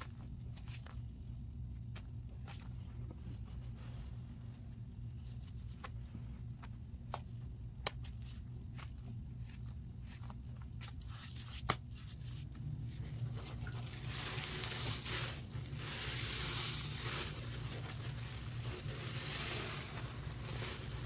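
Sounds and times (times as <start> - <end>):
sponge rinsed and squeezed: 12.2 - 21.0.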